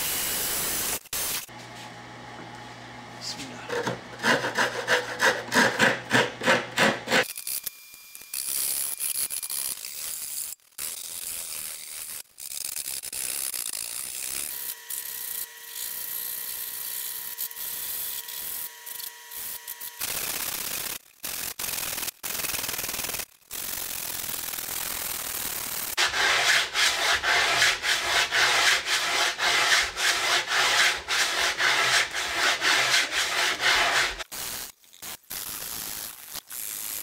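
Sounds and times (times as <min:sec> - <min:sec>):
wood chisel scraping: 0:03.4 - 0:07.3, 0:26.0 - 0:34.2.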